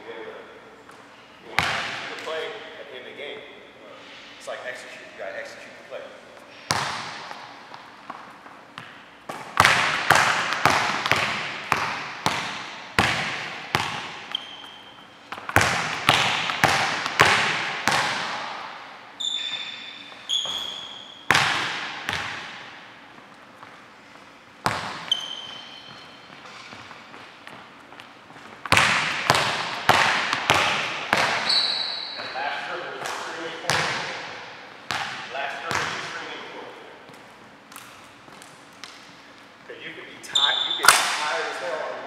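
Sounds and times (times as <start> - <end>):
basketball bouncing on hardwood floor: 1.6 - 2.0, 6.7 - 7.4, 8.8 - 14.5, 15.3 - 18.6, 21.3 - 22.7, 24.6 - 26.9, 28.7 - 31.5, 33.7 - 34.1, 34.9 - 36.1
sneakers squeaking on court: 6.4 - 34.2, 34.8 - 36.4, 37.0 - 41.2.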